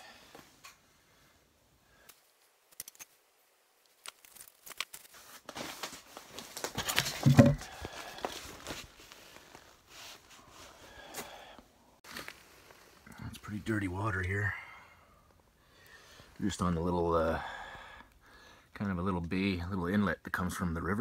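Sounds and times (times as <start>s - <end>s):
camera handling rustling: 6.4s - 7.8s
camera thump: 7.0s - 7.7s.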